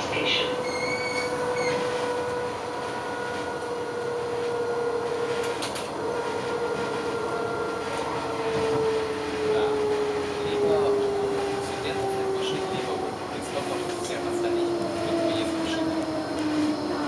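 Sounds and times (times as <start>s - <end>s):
tram wheel and track rumble: 0.0s - 17.0s
high-pitched squeal: 0.2s - 2.3s.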